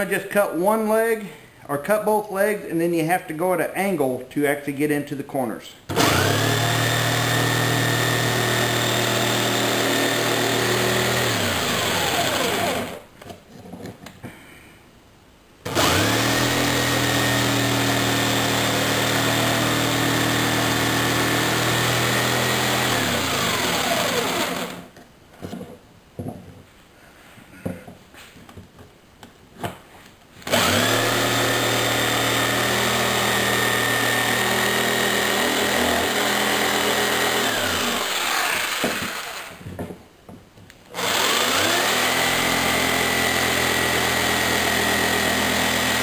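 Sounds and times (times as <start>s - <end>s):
jigsaw cutting wood: 5.9s - 13.0s, 15.7s - 24.9s, 30.4s - 39.6s, 40.9s - 46.0s.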